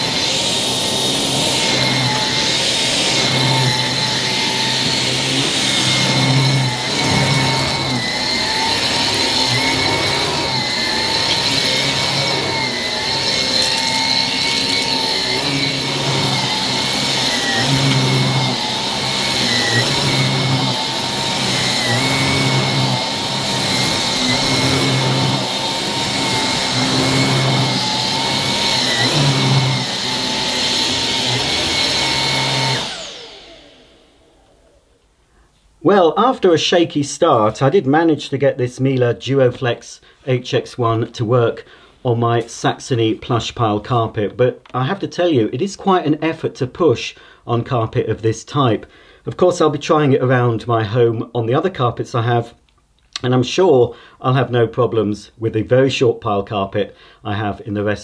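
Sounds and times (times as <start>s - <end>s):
stick vacuum running on carpet: 0.0s - 34.8s
vacuum winding down: 0.0s - 35.0s.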